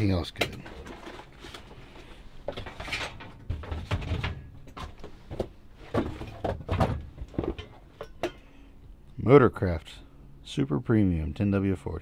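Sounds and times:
junk clattering and scraping: 0.4 - 8.5.

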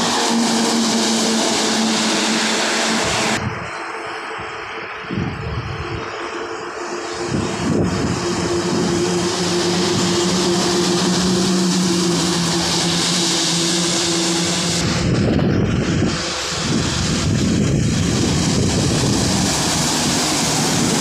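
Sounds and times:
tyre hiss on wet road: 0.0 - 5.1, 8.5 - 15.0
diesel truck engine hum: 0.0 - 21.0.

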